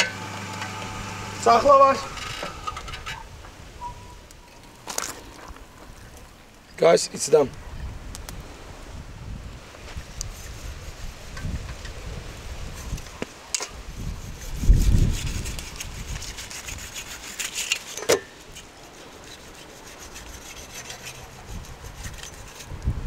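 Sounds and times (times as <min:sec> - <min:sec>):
knife sawing through roasted meat: 0:00.2 - 0:02.7, 0:10.0 - 0:11.3, 0:13.8 - 0:22.8.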